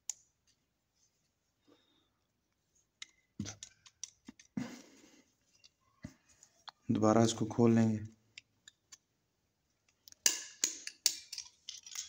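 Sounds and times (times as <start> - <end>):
pistol parts clicking and rattling: 3.0 - 4.6, 9.8 - 12.0.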